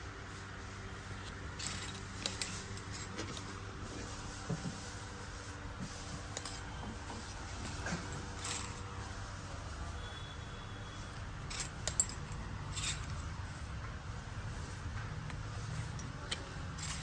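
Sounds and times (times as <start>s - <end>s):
hangers scraping on metal rail: 1.5s - 3.6s, 6.2s - 9.1s, 11.2s - 13.4s, 16.2s - 17.0s
sharp clinks: 11.5s - 13.2s.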